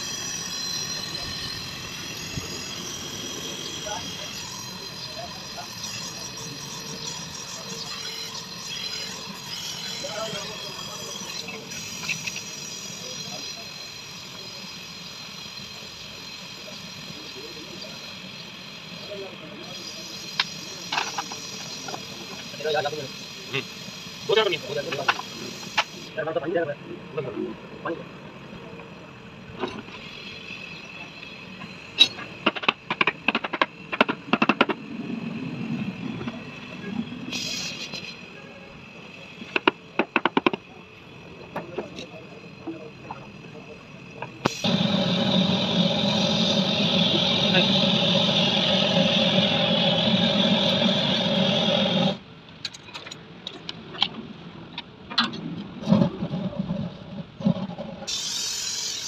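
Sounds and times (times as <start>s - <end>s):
loud machine drone: 0.0s - 21.0s, 43.4s - 52.2s.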